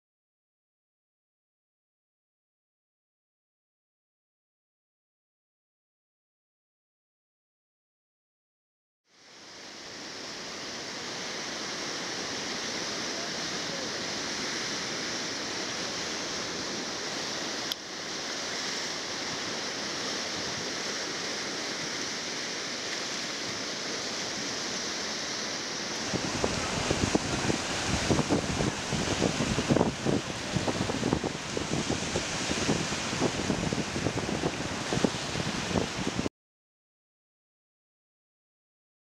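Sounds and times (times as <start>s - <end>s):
waves breaking: 9.3s - 36.3s.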